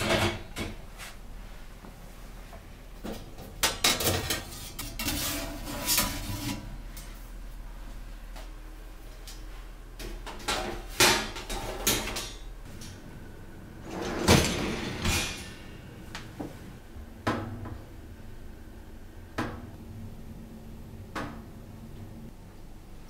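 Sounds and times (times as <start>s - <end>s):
wire racks rattling and rolling: 10.0s - 13.1s, 13.7s - 16.6s.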